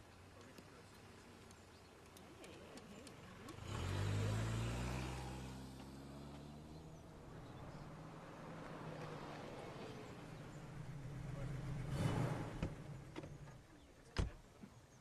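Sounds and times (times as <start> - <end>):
car engine slowing down: 3.4 - 13.7.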